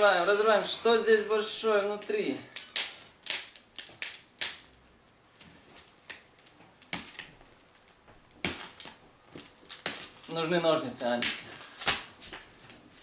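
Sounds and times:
plastic wrapping crinkling: 0:05.3 - 0:13.0.

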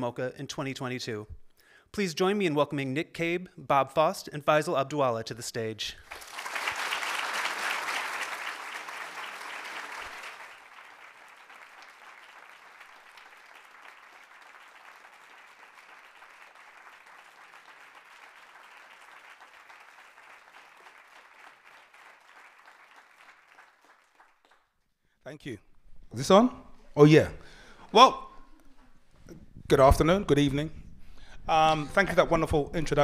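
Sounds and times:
audience applauding: 0:06.0 - 0:24.8.

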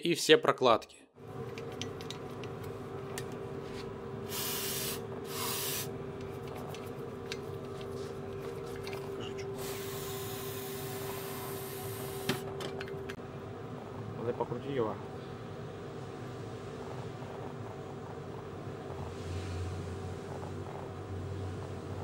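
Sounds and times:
steady hum: 0:01.2 - 0:22.0
aerosol spray can hissing: 0:04.3 - 0:05.9, 0:09.6 - 0:12.4.

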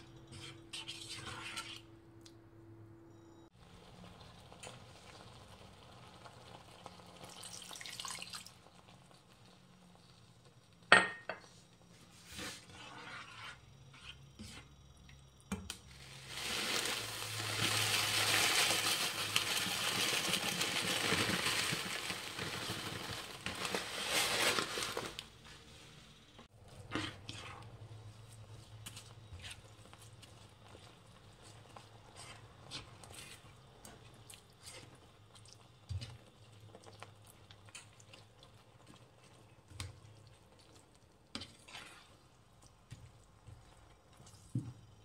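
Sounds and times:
spoon scraping in a wok: 0:00.0 - 0:02.0, 0:11.4 - 0:15.0, 0:26.7 - 0:35.1, 0:41.3 - 0:42.4
sauce sizzling and bubbling: 0:03.5 - 0:11.0, 0:11.6 - 0:45.0.

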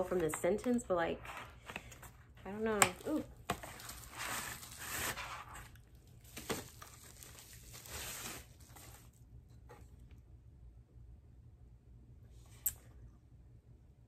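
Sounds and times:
paper tearing and crinkling: 0:03.1 - 0:09.1.

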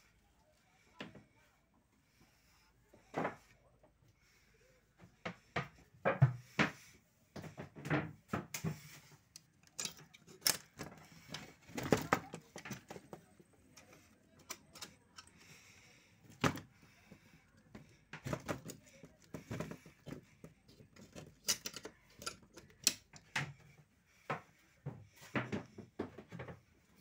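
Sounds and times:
metal sliding bolt clicking and rattling: 0:09.4 - 0:11.4, 0:21.1 - 0:23.3.

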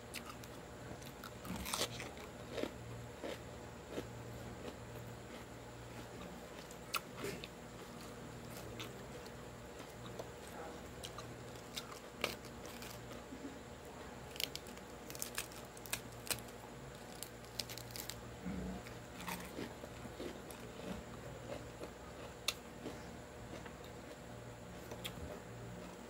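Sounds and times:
chewing crunchy lettuce: 0:00.0 - 0:26.0
lettuce leaves tearing: 0:14.3 - 0:18.2.

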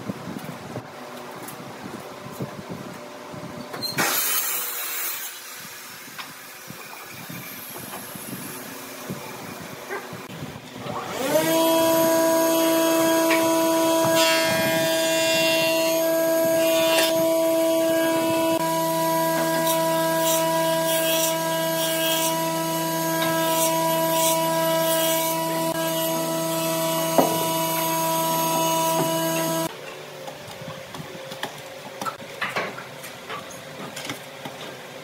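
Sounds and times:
power tool motor whining: 0:10.8 - 0:29.7.

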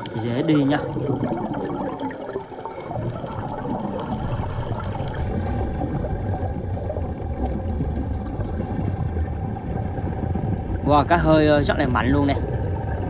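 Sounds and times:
air bubbling from hose: 0:00.0 - 0:13.0
boat engine drone underwater: 0:00.0 - 0:13.0.

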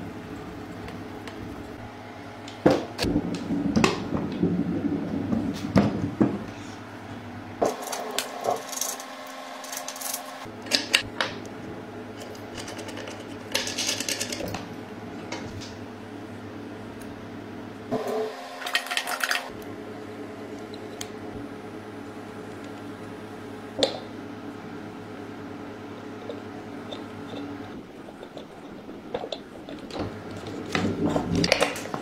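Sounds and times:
steady low hum: 0:00.0 - 0:32.0
small metal parts clicking: 0:07.7 - 0:11.0, 0:12.2 - 0:14.5, 0:18.6 - 0:19.5.

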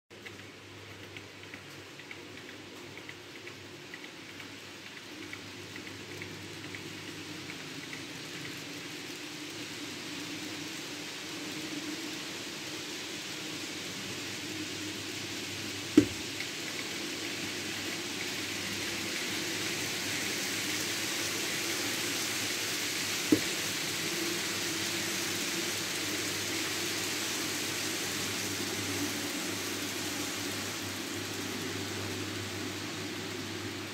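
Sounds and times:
model train wheels rolling on rail: 0:00.1 - 0:33.9.

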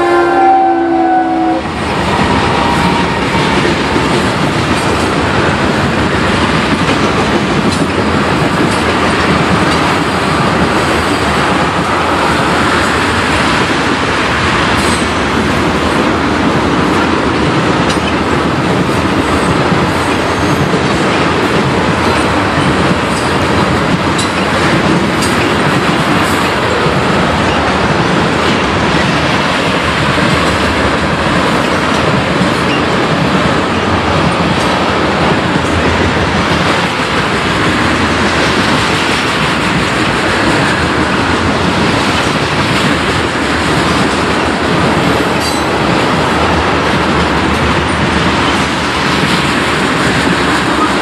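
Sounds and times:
freight train wheels rumbling on rails: 0:00.0 - 0:51.0.

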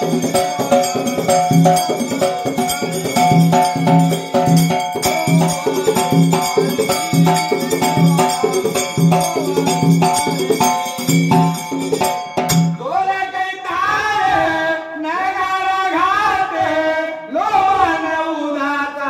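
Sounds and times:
jingling percussion: 0:00.0 - 0:13.0
drum beating a rhythm: 0:00.0 - 0:13.1
man singing long held notes: 0:05.0 - 0:10.2.

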